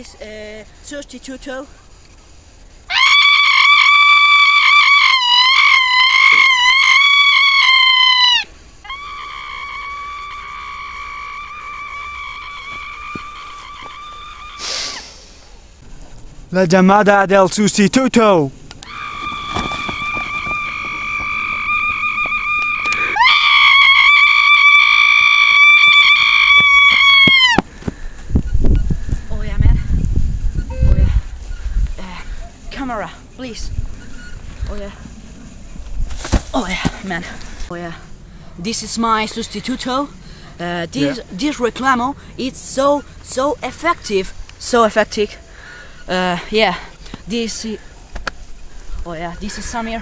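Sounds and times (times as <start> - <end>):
person screaming: 2.9 - 14.7, 18.9 - 27.6.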